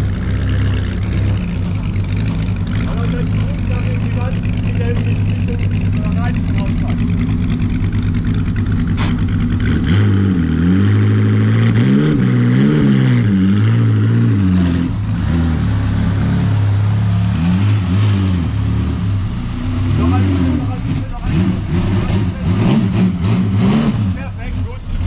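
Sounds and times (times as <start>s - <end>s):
racing car engine revving: 0.0s - 25.0s.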